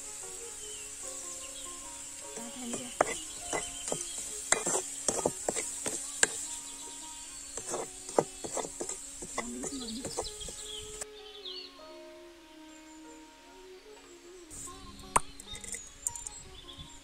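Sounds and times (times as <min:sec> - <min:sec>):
high insect drone: 0:00.0 - 0:17.0
ladle scraping onions in metal pan: 0:02.1 - 0:11.0, 0:15.2 - 0:16.3.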